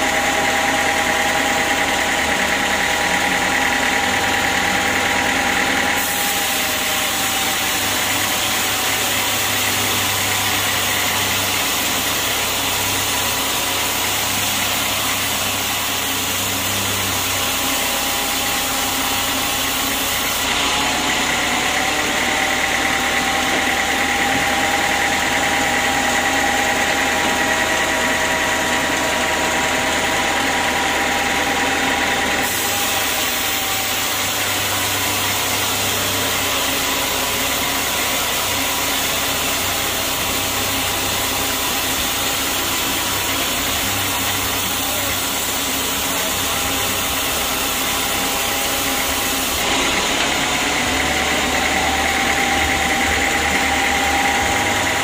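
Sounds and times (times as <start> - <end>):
band sawmill cutting log: 0.0 - 55.0
high saw blade whine: 0.0 - 55.0.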